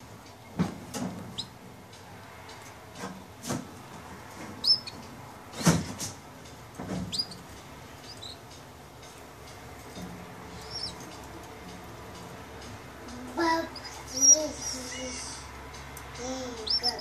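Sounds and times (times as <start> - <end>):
canaries chirping: 0.4 - 2.8, 3.5 - 17.0
sharp knocks: 5.5 - 6.2.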